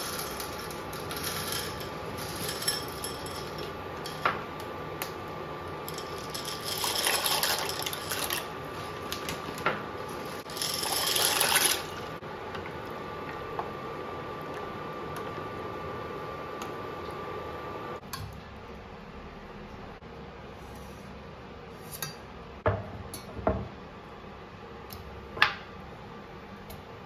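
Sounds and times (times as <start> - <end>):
utensils clinking: 0.0 - 4.5, 5.8 - 12.2.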